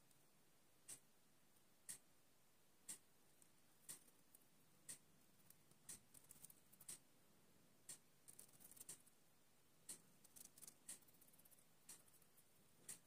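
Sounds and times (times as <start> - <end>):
bird nibbling leaves: 5.4 - 7.0, 8.2 - 9.0, 10.2 - 12.4.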